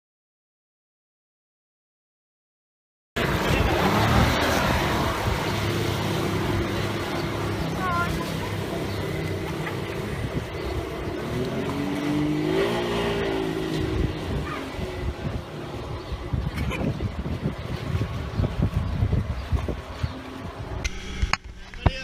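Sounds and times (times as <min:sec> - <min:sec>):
outboard motor running: 0:03.2 - 0:21.1.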